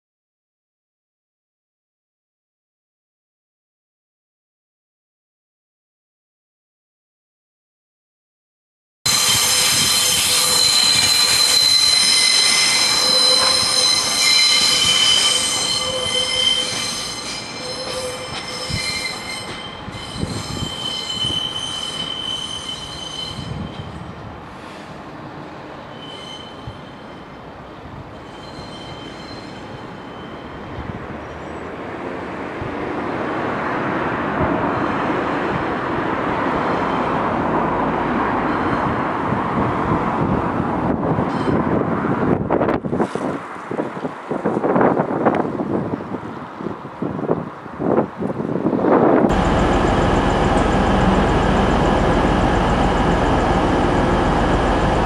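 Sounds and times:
train wheels squealing on curves: 0:09.1 - 0:25.0, 0:25.8 - 0:27.5, 0:28.1 - 0:31.7, 0:36.6 - 0:37.3, 0:38.3 - 0:39.1, 0:41.3 - 0:41.8.

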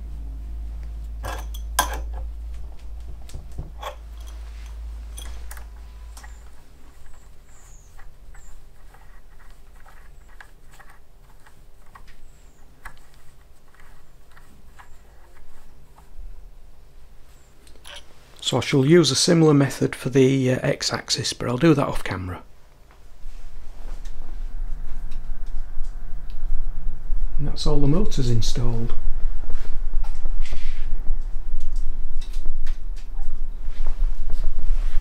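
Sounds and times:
low rumble: 0:23.0 - 0:35.0.

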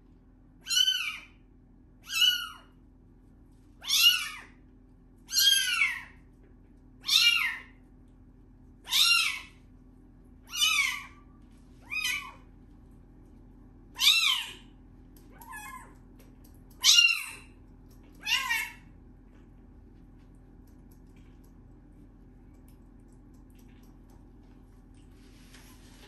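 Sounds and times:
kitten meowing: 0:00.6 - 0:01.3, 0:02.0 - 0:02.7, 0:03.8 - 0:04.6, 0:05.3 - 0:06.2, 0:07.0 - 0:07.7, 0:10.5 - 0:11.2, 0:11.8 - 0:12.4, 0:14.0 - 0:14.7, 0:18.2 - 0:18.8.

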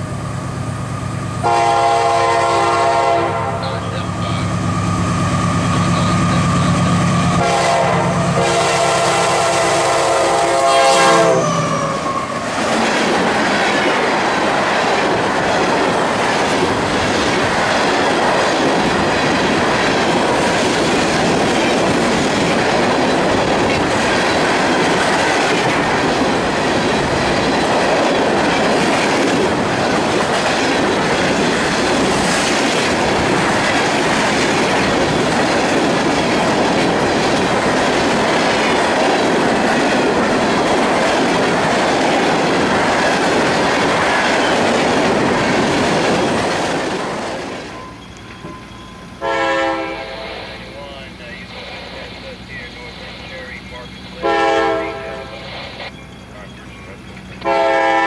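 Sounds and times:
train wheels clattering on rails: 0:03.9 - 0:49.5.

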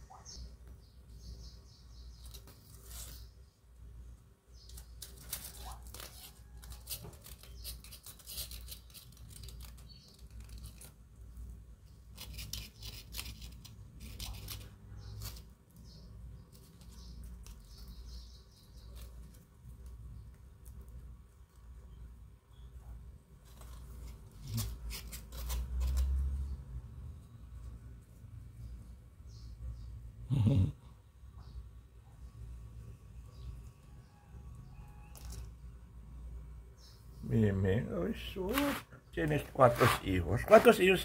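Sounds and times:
dry leaf rustling on floor: 0:04.7 - 0:11.0.

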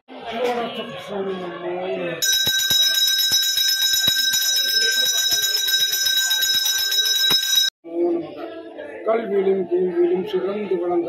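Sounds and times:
brass hand bell ringing: 0:02.2 - 0:07.7.

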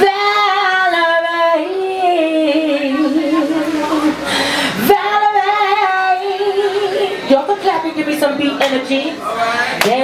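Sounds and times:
woman singing a cappella: 0:00.0 - 0:09.2, 0:09.8 - 0:10.0
singer's quick breath: 0:04.2 - 0:04.8.

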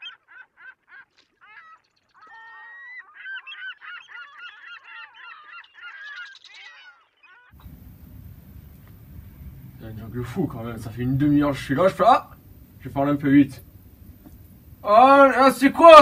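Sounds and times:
gulls calling: 0:00.0 - 0:16.0
room hiss: 0:07.6 - 0:16.0.

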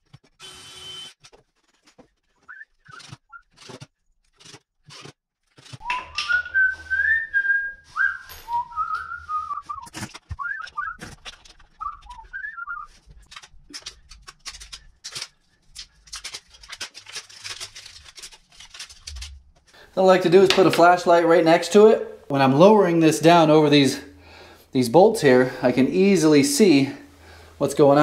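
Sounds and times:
man whistling a tune: 0:05.8 - 0:11.0, 0:11.8 - 0:12.9.

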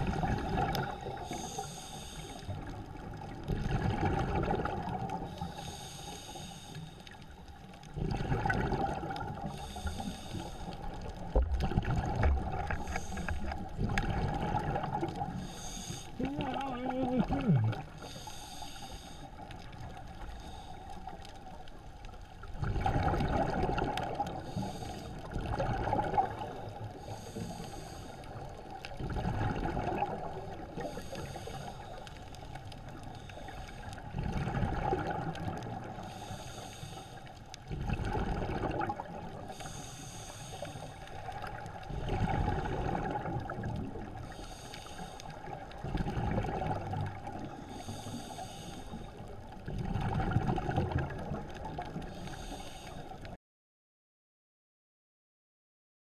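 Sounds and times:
exhaled bubbles rumbling underwater: 0:00.0 - 0:53.4
regulator hissing inhale: 0:00.8 - 0:02.8, 0:05.2 - 0:07.6, 0:09.3 - 0:11.0, 0:12.7 - 0:13.6, 0:15.3 - 0:16.2, 0:17.8 - 0:21.2, 0:24.2 - 0:25.3, 0:26.5 - 0:28.7, 0:30.6 - 0:34.1, 0:35.9 - 0:37.5, 0:39.4 - 0:41.3, 0:44.2 - 0:45.7, 0:47.4 - 0:49.4, 0:52.0 - 0:53.3.

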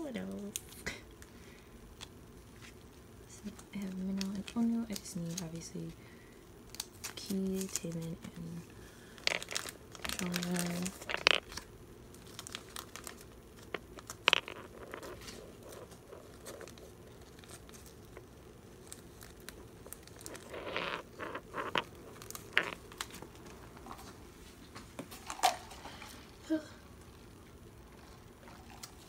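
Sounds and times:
plastic pages crinkling: 0:03.4 - 0:05.9, 0:06.7 - 0:24.2.

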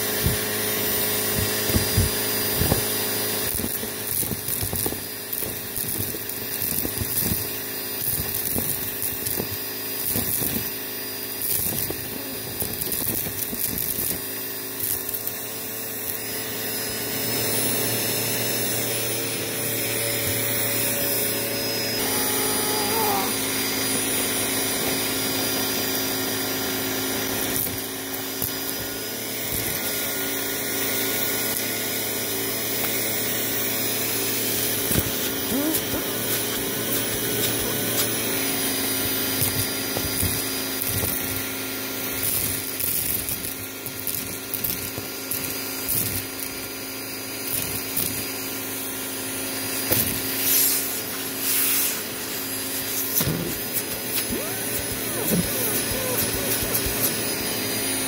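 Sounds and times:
vacuum cleaner running: 0:00.0 - 0:58.0
debris clicking in hose: 0:01.3 - 0:10.7, 0:42.2 - 0:46.5, 0:52.8 - 0:57.4.

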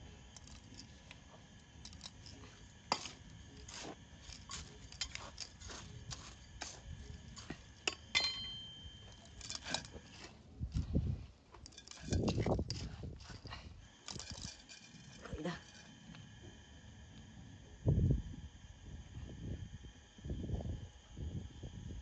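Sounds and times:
gritty soil stirred and scooped: 0:00.0 - 0:08.1, 0:09.0 - 0:16.3
scoop clinking on metal: 0:01.8 - 0:10.3, 0:11.6 - 0:12.8, 0:14.0 - 0:15.9
grit scraping metal basin: 0:01.8 - 0:10.4, 0:11.6 - 0:16.1.

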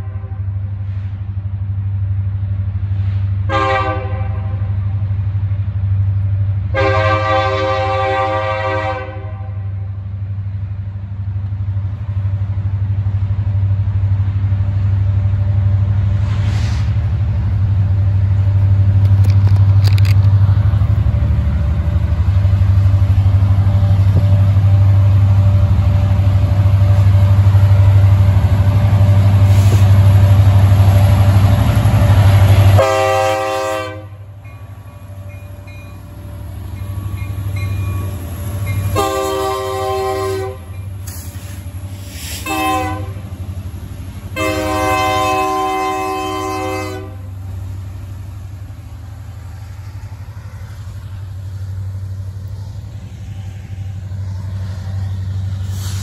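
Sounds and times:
locomotive horn blasts: 0:00.0 - 0:00.6, 0:03.5 - 0:04.8, 0:06.7 - 0:09.9, 0:32.8 - 0:34.4, 0:38.7 - 0:40.8, 0:42.4 - 0:43.2, 0:44.4 - 0:47.3
diesel locomotives rumbling past: 0:00.0 - 0:56.0.

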